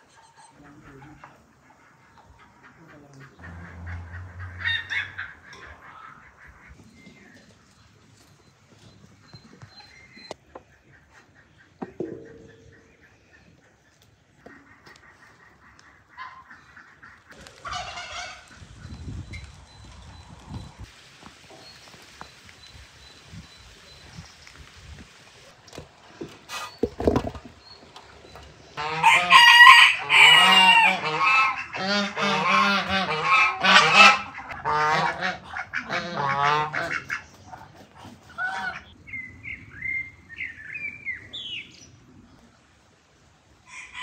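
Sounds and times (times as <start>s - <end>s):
fowl honking calls: 0.0s - 6.8s, 14.4s - 18.6s, 28.8s - 37.3s, 38.2s - 39.0s.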